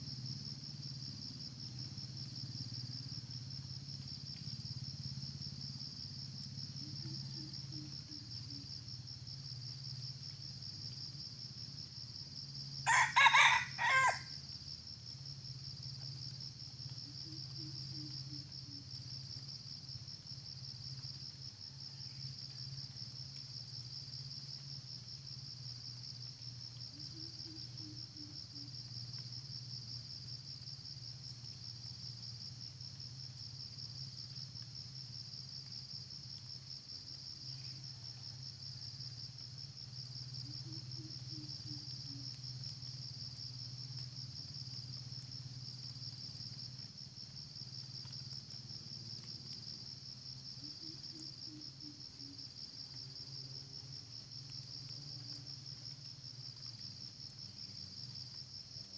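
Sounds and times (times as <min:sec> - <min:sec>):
insects droning: 0:00.0 - 0:58.9
rooster crowing: 0:12.8 - 0:14.4.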